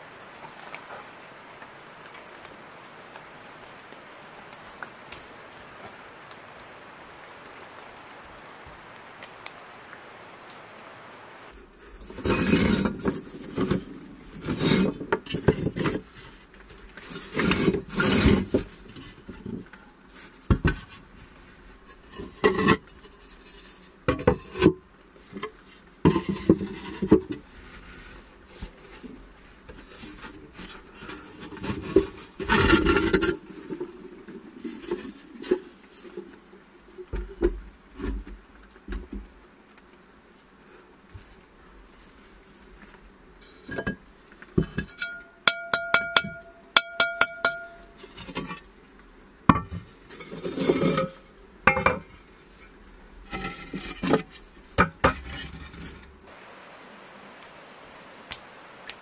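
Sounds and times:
ceramic plates scraping and knocking: 21.9s - 23.2s, 24.1s - 24.8s, 26.1s - 27.4s, 44.6s - 48.6s, 49.5s - 52.2s, 53.3s - 56.1s.

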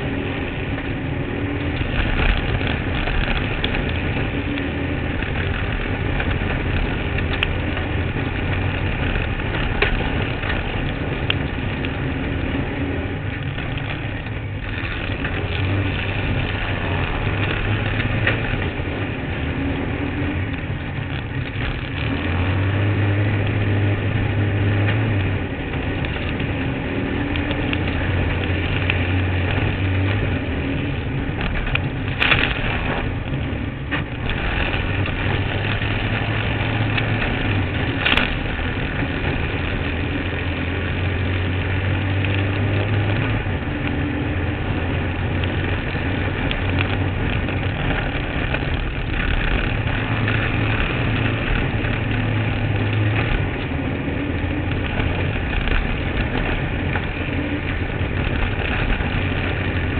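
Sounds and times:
buggy engine running: 0.0s - 59.9s.

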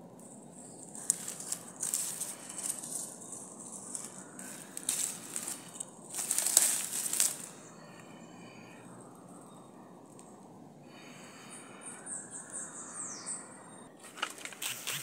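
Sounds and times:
hand digging in dry soil: 0.2s - 7.5s.

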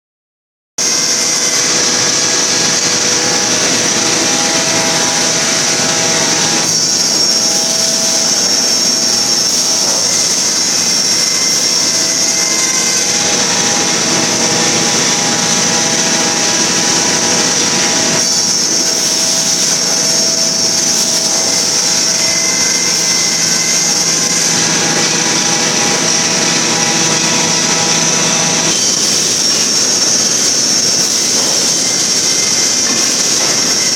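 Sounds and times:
factory machinery whine and hum: 0.8s - 33.9s.

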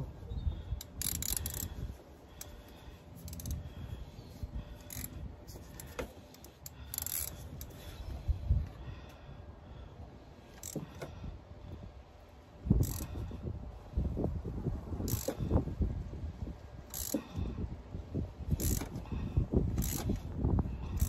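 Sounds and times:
socket ratchet clicking: 0.8s - 1.7s, 3.2s - 3.6s, 6.4s - 7.7s, 12.8s - 13.1s, 15.0s - 15.4s, 16.9s - 17.2s, 18.6s - 18.9s, 19.8s - 20.2s.

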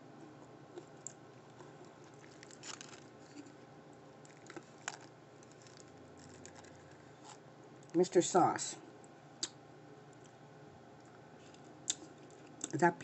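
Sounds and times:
quiet chewing: 0.1s - 8.0s, 9.0s - 10.4s, 11.0s - 12.8s
paper wrapper rustling: 1.6s - 3.6s, 4.3s - 7.4s.

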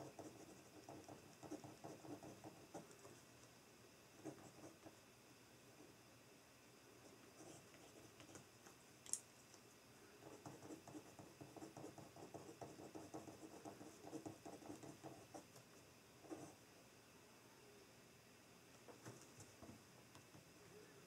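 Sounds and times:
pen scratching on paper: 0.0s - 3.2s, 4.2s - 4.9s, 10.2s - 15.6s, 16.2s - 16.6s.

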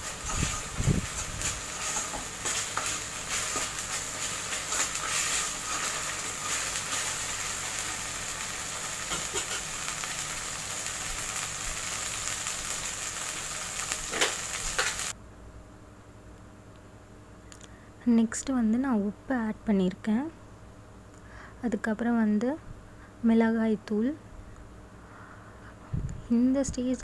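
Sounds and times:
paste sizzling in hot oil: 0.0s - 15.1s
small crackling pops: 9.0s - 15.1s.

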